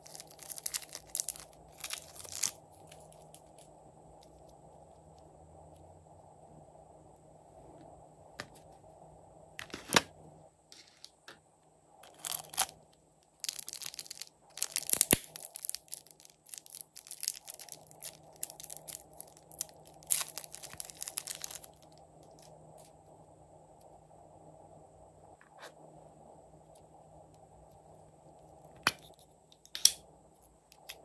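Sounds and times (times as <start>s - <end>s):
plastic bag of slime crinkling: 0.0s - 3.6s, 12.0s - 12.8s, 13.4s - 22.5s.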